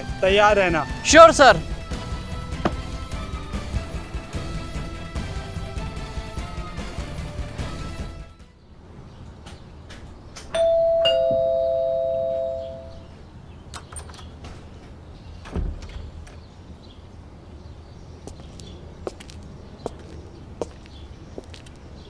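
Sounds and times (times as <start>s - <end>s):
dull thump: 2.0s - 3.0s
doorbell ding-dong chime: 10.6s - 13.0s.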